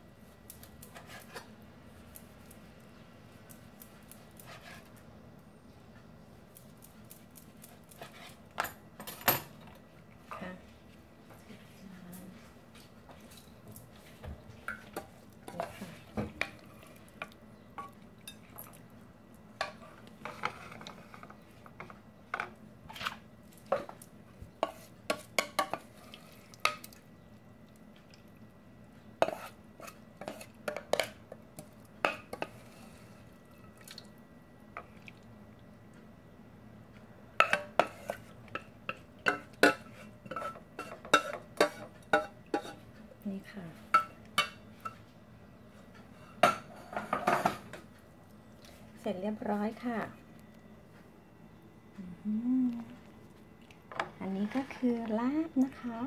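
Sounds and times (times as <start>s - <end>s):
wooden spoon scraping metal bowl: 4.4s - 4.9s, 19.6s - 21.3s, 24.6s - 26.2s, 29.2s - 31.1s, 39.6s - 42.8s, 54.2s - 55.0s.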